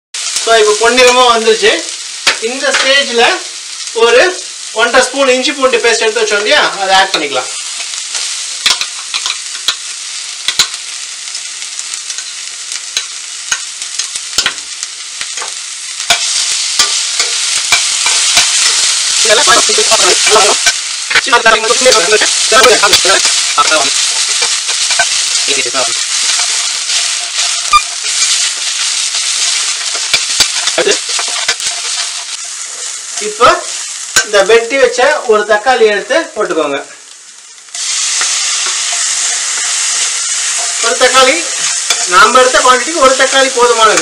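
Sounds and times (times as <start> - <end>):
onions sizzling in oil: 0.2 - 44.0
spatula scraping a pan: 15.4 - 32.9.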